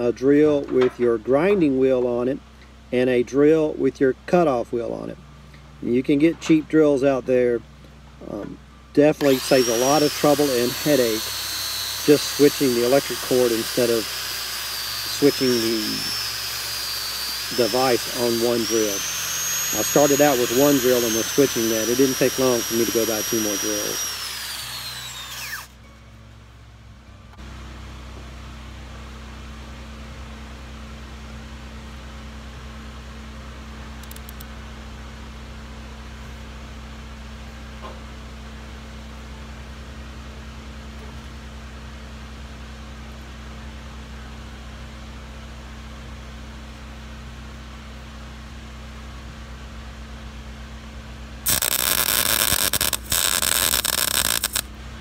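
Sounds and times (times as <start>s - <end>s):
welder arc: 9.1s - 25.8s, 51.4s - 54.8s
angle grinder spinning down: 9.2s - 25.8s, 51.5s - 54.7s
steady low hum: 50.7s - 55.0s.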